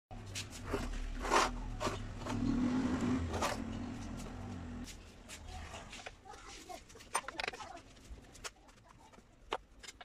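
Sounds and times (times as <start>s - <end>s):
low engine hum: 0.8s - 4.9s.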